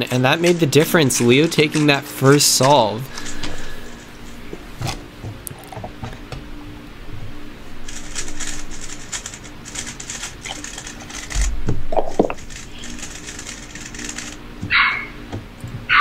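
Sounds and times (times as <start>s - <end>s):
speed cube clicking and rattling: 7.8s - 14.4s.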